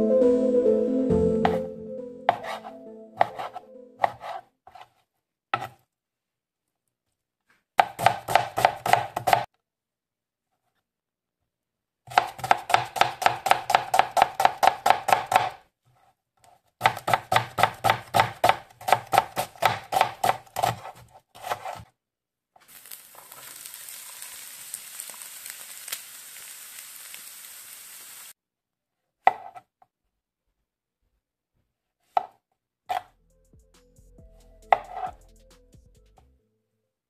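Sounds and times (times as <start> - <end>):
knife chopping on plastic board: 3.2 - 4.9, 5.6 - 5.8, 7.8 - 9.5, 12.1 - 15.6, 16.8 - 21.9, 29.3 - 29.7, 32.1 - 33.1, 34.7 - 35.1
steady hiss: 22.7 - 28.3.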